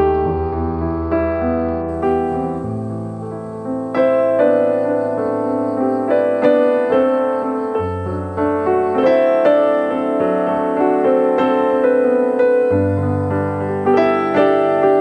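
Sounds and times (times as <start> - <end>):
slow piano chords: 0.0 - 15.0.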